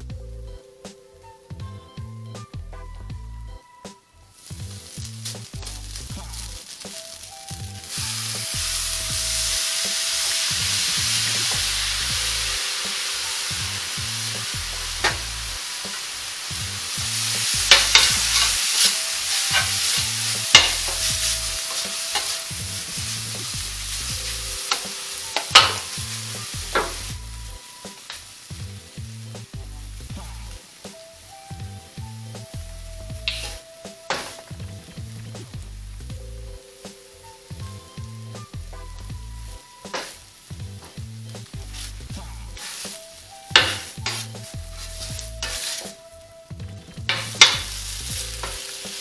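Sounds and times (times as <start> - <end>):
noodles sizzling on a griddle: 4.2 - 49.0
spatula scraping a griddle: 4.4 - 11.8, 14.2 - 27.2, 41.3 - 46.0, 47.1 - 49.0.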